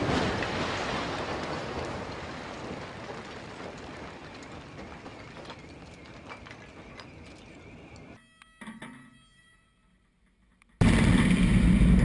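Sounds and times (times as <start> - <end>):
rumbling crash of falling masonry: 0.0 - 5.5
debris knocks: 0.0 - 5.6.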